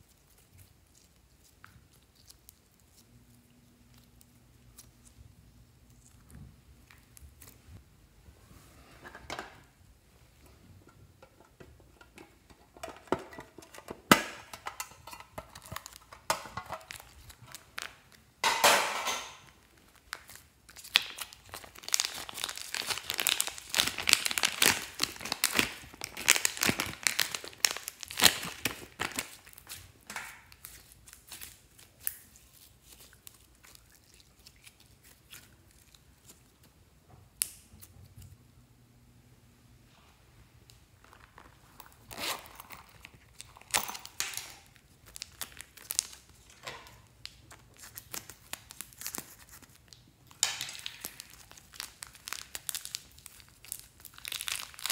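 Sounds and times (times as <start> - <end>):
plastic bag crinkling: 15.1 - 18.3, 19.2 - 36.5, 41.0 - 54.9.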